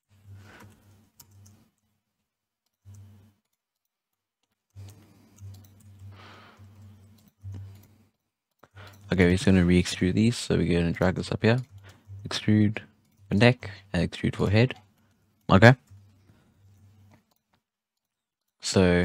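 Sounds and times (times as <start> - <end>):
scroll wheel turning: 0.2 - 2.0, 2.6 - 18.6
computer mouse clicks: 0.6 - 1.9, 2.6 - 9.1, 11.0 - 12.3, 15.8 - 18.6
low hum: 4.7 - 17.3.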